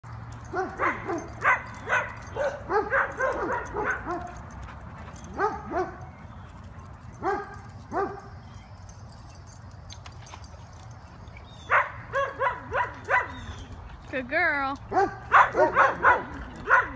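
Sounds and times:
dog barking: 0.5s - 4.3s, 7.2s - 8.2s, 11.7s - 13.4s, 14.9s - 16.9s.

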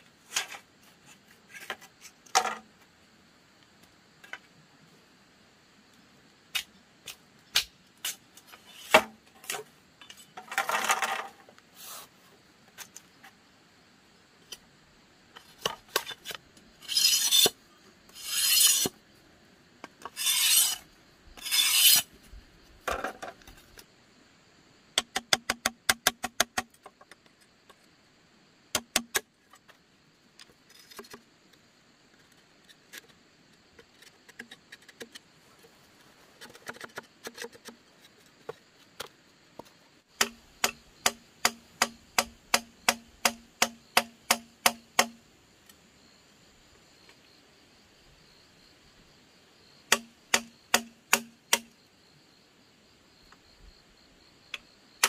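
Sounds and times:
rasping strokes on bamboo: 16.1s - 19.0s, 20.0s - 22.1s.

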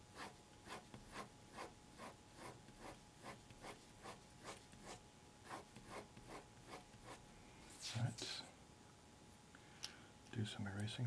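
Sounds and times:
pencil scratching on paper: 0.1s - 7.2s.

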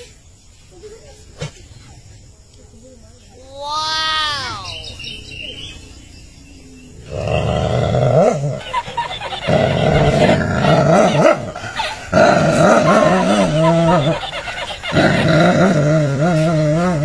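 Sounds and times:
dog growling: 7.0s - 14.2s, 14.9s - 17.0s.

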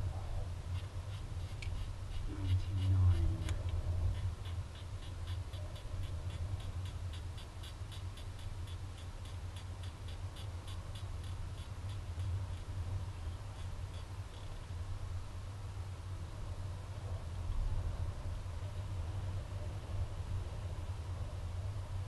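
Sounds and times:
faint even ticking: 0.8s - 14.6s.

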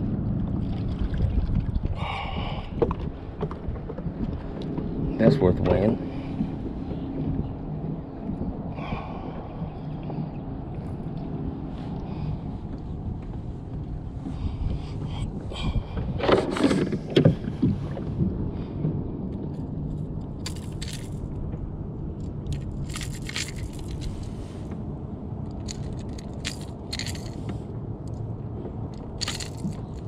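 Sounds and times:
wind noise on microphone: 0.0s - 27.7s
knocks and scrapes in plastic kayak: 16.0s - 18.3s
short high rattles: 29.2s - 30.0s.

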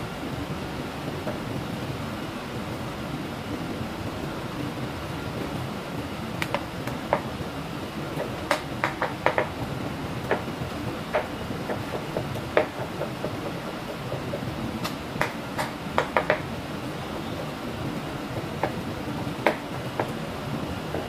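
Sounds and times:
steady background noise: 0.0s - 21.0s.

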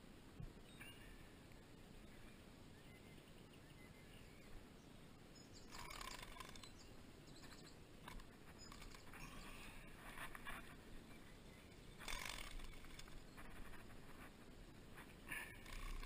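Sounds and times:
fishing reel drag ticking: 12.0s - 13.1s, 15.6s - 16.0s.

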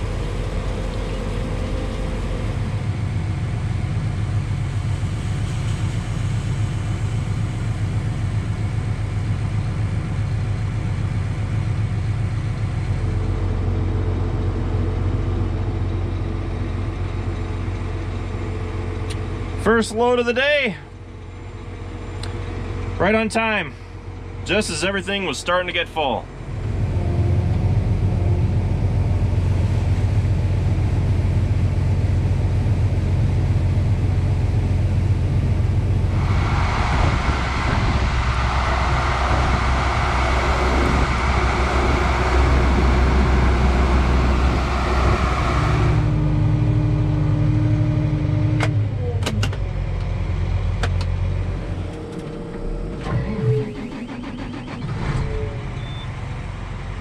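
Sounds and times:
tractor engine running under load: 0.0s - 57.0s
loud rushing hiss: 35.8s - 46.1s.

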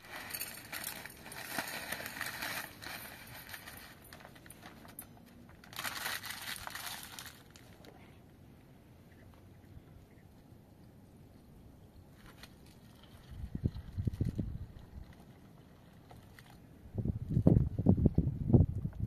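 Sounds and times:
plastic packet crinkling: 0.0s - 7.9s.

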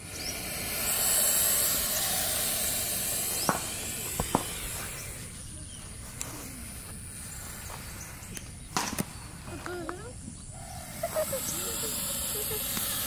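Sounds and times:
snake hissing: 0.0s - 13.0s
sharp clicks: 0.7s - 5.4s, 11.8s - 13.0s.

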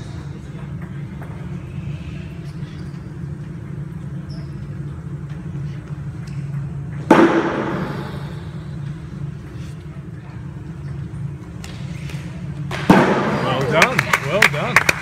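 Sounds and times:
steady low hum: 0.0s - 15.0s
loud echoing knock: 7.0s - 8.3s, 12.7s - 13.4s.

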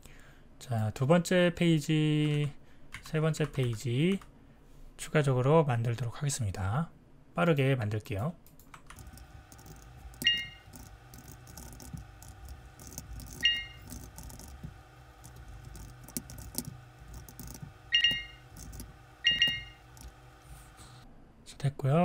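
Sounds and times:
keyboard typing: 2.2s - 4.3s, 8.5s - 21.0s
mouse clicking: 8.5s - 20.4s
bright ringing pings: 10.2s - 10.7s, 13.3s - 13.8s, 17.9s - 18.5s, 19.2s - 19.9s.

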